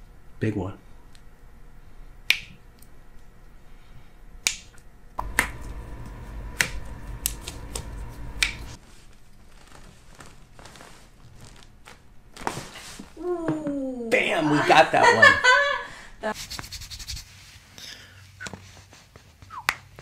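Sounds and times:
low rumble of hands handling: 5.2 - 13.7.

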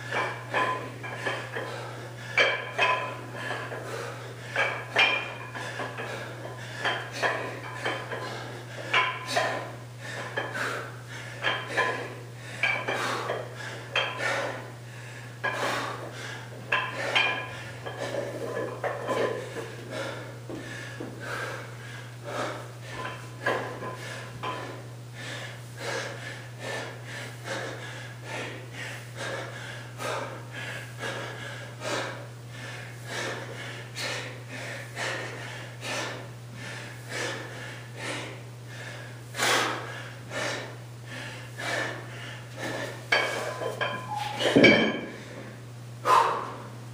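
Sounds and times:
man breathing hard: 0.0 - 46.8
low steady hum: 0.0 - 46.9
light metallic clinks of dumbbell: 43.1 - 45.2.

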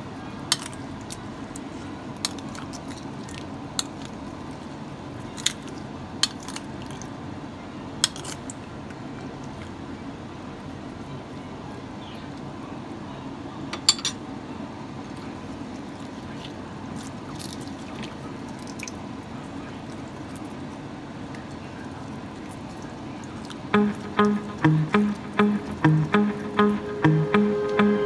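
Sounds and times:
wet squishing of meat: 15.1 - 23.7.

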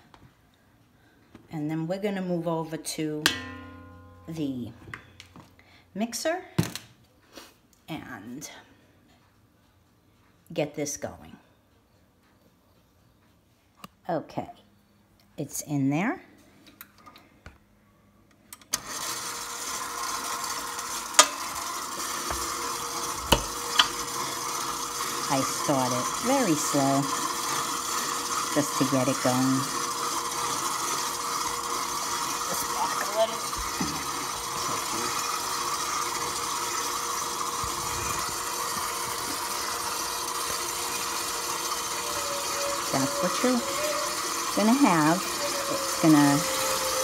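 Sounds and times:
stand mixer motor humming: 18.8 - 47.0.

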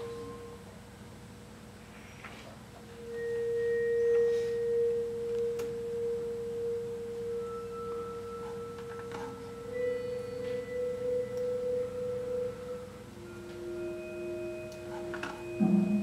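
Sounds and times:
fainter higher pure tones: 0.0 - 0.9, 2.8 - 16.0
steady pure tone: 0.0 - 2.1, 2.7 - 16.0.

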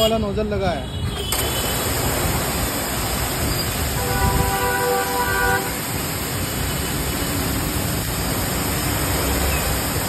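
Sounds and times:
street traffic: 0.0 - 10.0
pressure washer jet hissing: 1.3 - 10.0
vehicle horn: 4.0 - 5.8.

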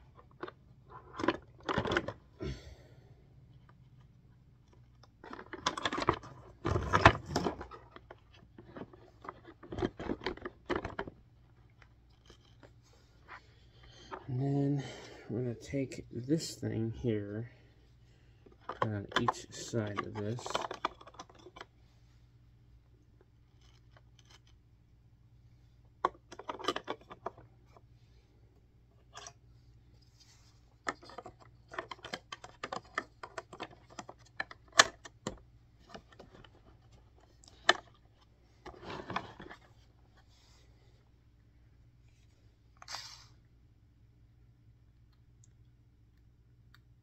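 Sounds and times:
plastic parts clicking and scraping: 0.0 - 2.4, 3.5 - 14.4, 18.4 - 21.8, 23.2 - 24.7, 25.9 - 27.9, 28.9 - 29.4, 30.0 - 40.6.

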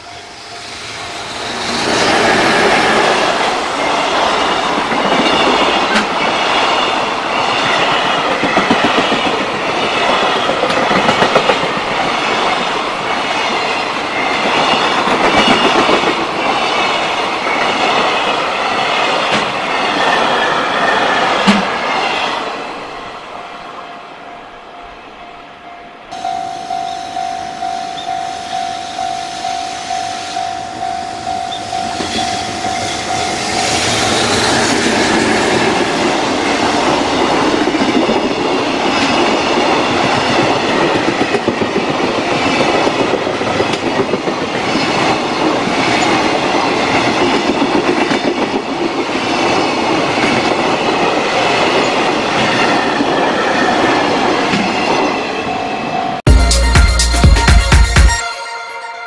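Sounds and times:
train wheels clattering on rails: 1.4 - 22.4, 30.8 - 55.3
pulsing ringing tone: 26.1 - 34.7.

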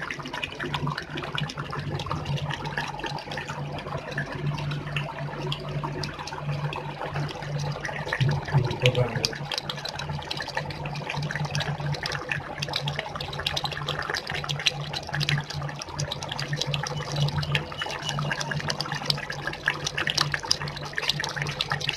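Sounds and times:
curry bubbles popping: 0.0 - 21.9
low hum: 6.7 - 9.4.

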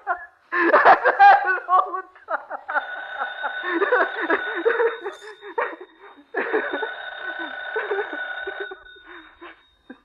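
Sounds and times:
man laughing: 0.6 - 5.8.

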